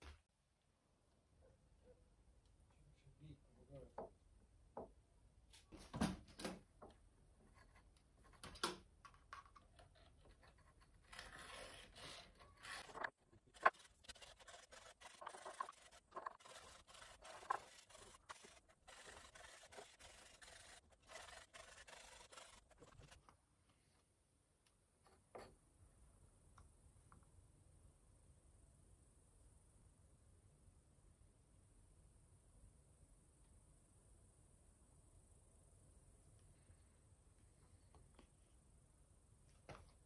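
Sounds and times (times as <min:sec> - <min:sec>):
wooden stick scraping: 0:09.3 - 0:23.3.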